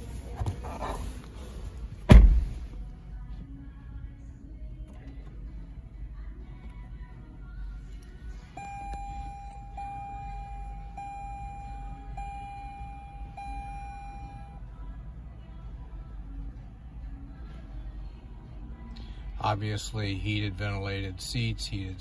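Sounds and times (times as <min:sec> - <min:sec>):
low steady rumble: 0:00.0 - 0:20.1
dashboard chime tone: 0:08.6 - 0:14.6.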